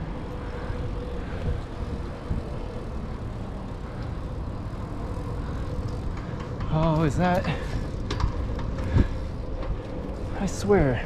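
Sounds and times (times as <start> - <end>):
wind on microphone: 0.0 - 3.6
bicycle tyres rolling on concrete: 0.0 - 11.0.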